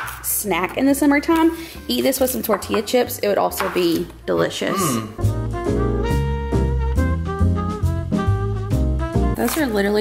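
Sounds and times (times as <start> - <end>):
jazz music with horns: 4.2 - 10.0
steady bass line: 5.0 - 9.4.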